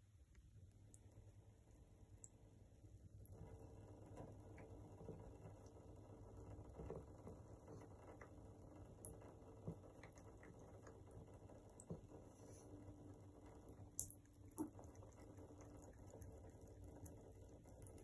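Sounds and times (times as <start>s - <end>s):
tap water trickling into bathtub: 3.1s - 18.0s.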